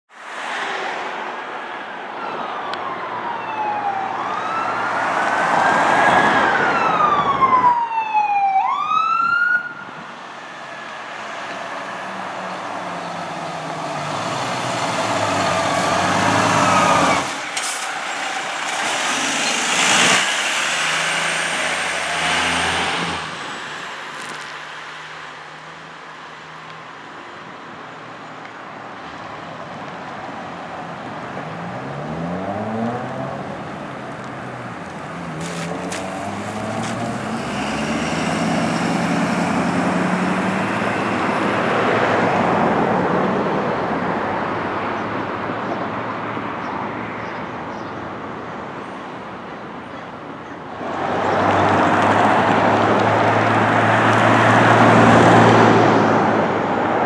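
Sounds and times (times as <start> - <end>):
fire engine engine: 1.4 - 45.0
emergency siren wailing and yelping: 2.1 - 10.0.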